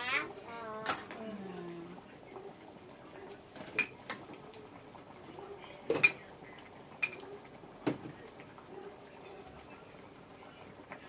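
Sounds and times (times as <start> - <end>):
kitchenware knocking and clinking: 5.9 - 6.2.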